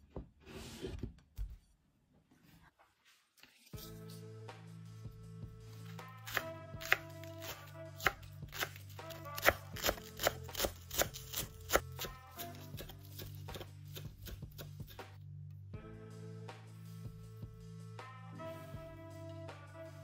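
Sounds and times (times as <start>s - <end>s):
soft background music: 3.1s - 20.0s
knife chopping on cutting board: 6.2s - 15.0s.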